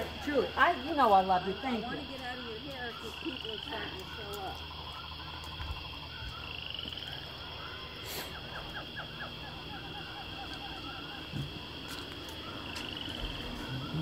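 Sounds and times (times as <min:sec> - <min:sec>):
animals chirping calls: 0:00.0 - 0:14.0
high animal drone: 0:00.0 - 0:14.0.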